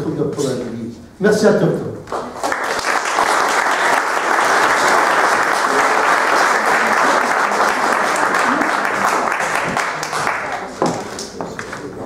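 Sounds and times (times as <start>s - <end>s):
crowd applauding: 2.1s - 11.2s.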